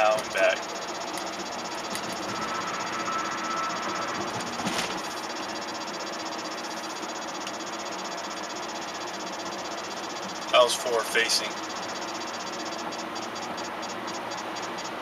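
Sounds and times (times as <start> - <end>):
car cabin road and engine noise: 0.0 - 15.0.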